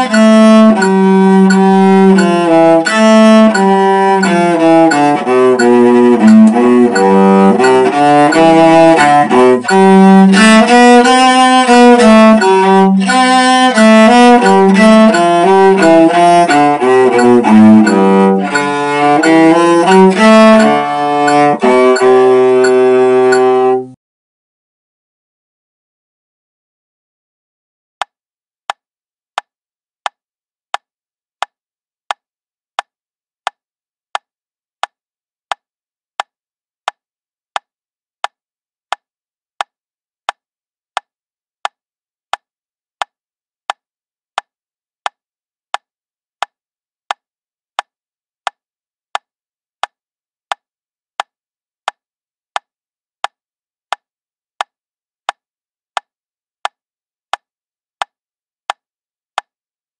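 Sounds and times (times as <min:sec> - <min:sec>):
metronome ticking: 0:00.0 - 0:24.0, 0:44.4 - 0:59.5.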